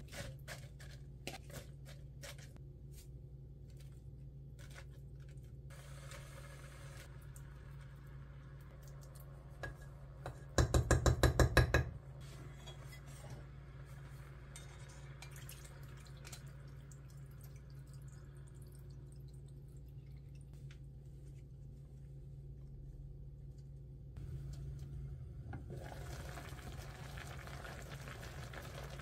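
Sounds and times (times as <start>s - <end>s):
steady low hum: 11.9s - 26.0s.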